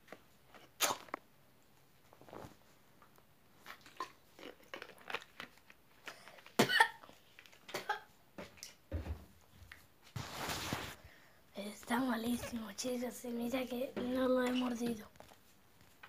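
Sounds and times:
mouth and swallowing noises: 3.6 - 6.6
boy coughing: 6.6 - 7.0.

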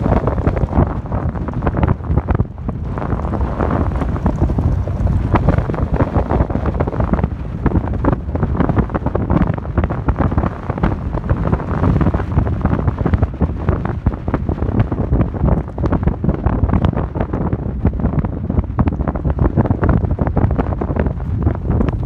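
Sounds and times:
tyres rumbling on gravel: 0.0 - 16.3
gravel crackling: 0.0 - 22.0
wind buffeting microphone: 0.0 - 22.0.

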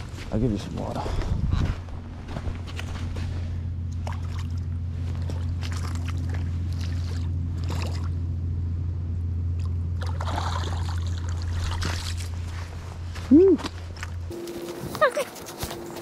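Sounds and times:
steady low hum: 0.0 - 16.0
footsteps splashing in shallow water: 3.9 - 8.2, 9.6 - 12.8.

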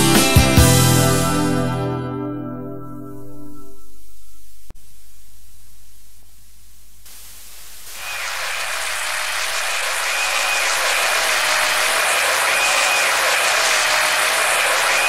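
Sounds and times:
low hiss: 3.7 - 12.0.

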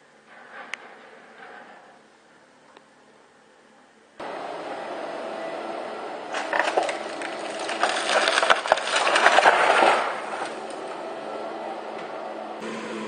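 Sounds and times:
steady background noise: 0.0 - 13.0
roofing sheets clattering: 6.2 - 11.2
timber cracking and splintering: 6.3 - 11.0.

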